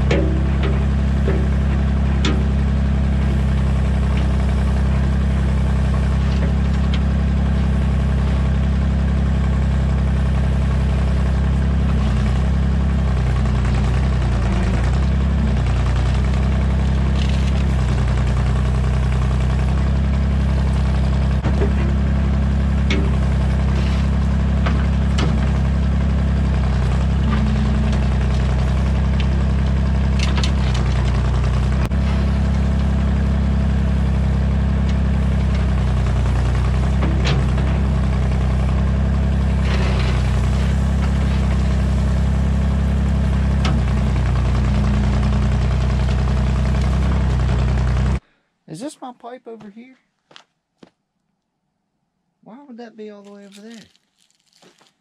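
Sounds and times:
excavator engine running: 0:00.0 - 0:48.2
bucket digging into gravel: 0:53.3 - 0:54.8.

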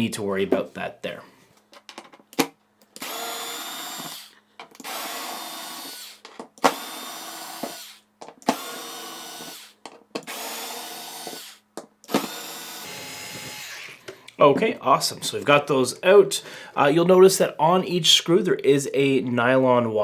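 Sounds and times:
electric screwdriver motor whine: 0:03.0 - 0:14.0.

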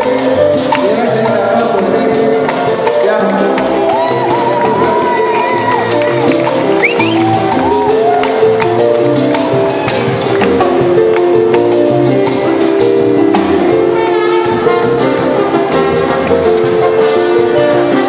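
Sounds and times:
congas: 0:00.0 - 0:18.0
piano: 0:00.0 - 0:18.0
salsa band playing: 0:00.0 - 0:18.0
trumpets: 0:13.7 - 0:18.0.

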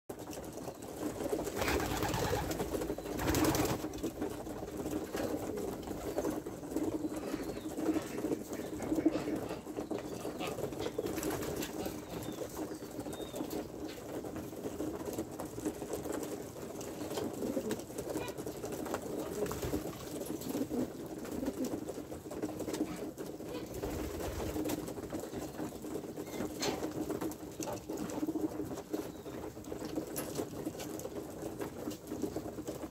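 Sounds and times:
wings fluttering: 0:00.2 - 0:28.4
pigeons cooing: 0:01.4 - 0:13.6, 0:16.8 - 0:29.4.

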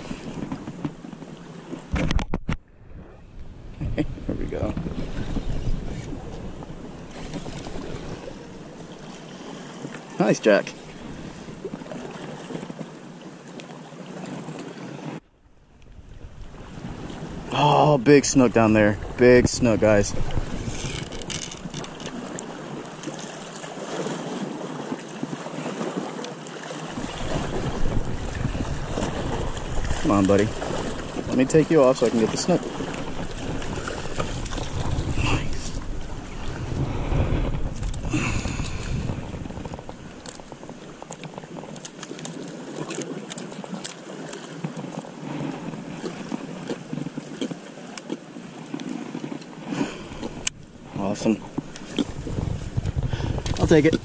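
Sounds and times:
waves washing against rocks: 0:00.0 - 0:02.3, 0:03.5 - 0:13.1, 0:16.2 - 0:54.0
wind on microphone: 0:00.0 - 0:09.2, 0:15.7 - 0:23.0, 0:26.9 - 0:41.8, 0:48.9 - 0:54.0.

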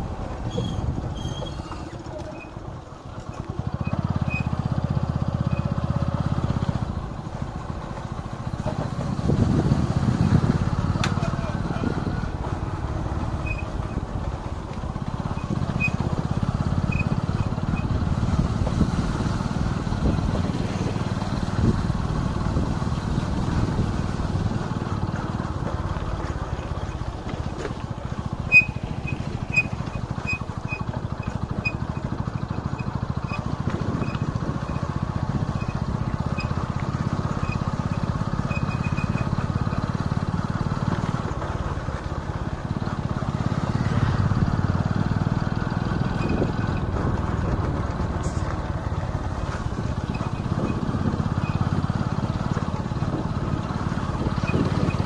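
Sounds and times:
motorcycle engine drone: 0:00.0 - 0:55.0
wind noise: 0:09.1 - 0:10.6, 0:53.0 - 0:55.0.

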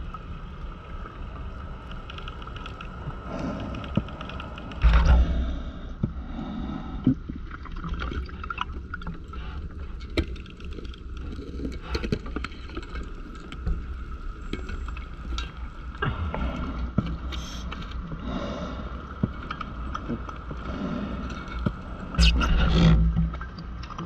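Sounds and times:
underwater low rumble: 0:02.8 - 0:24.0
breathing gas and bubbles hissing: 0:03.2 - 0:10.1.

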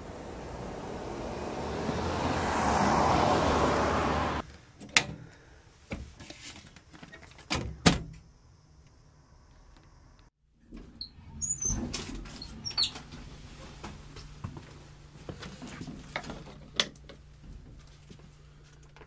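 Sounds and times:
road vehicle passing by: 0:00.0 - 0:04.4.

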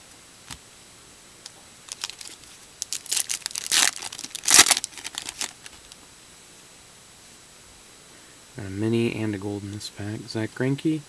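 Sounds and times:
foil wrapper tearing and crinkling: 0:01.9 - 0:06.0.

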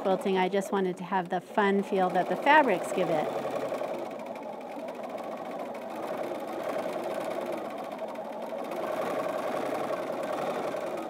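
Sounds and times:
sewing machine stitching: 0:00.0 - 0:11.0.

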